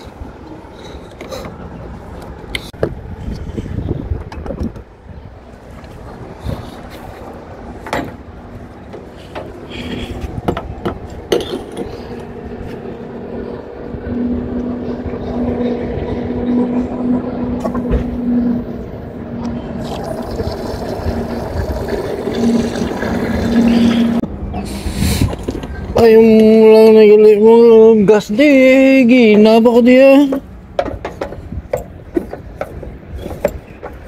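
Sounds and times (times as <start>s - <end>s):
fuel pump hum with rushing liquid: 0.0s - 25.9s.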